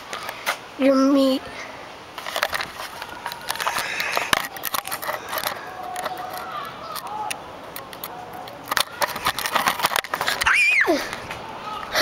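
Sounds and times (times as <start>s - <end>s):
camera handling clicks and knocks: 7.0s - 10.4s.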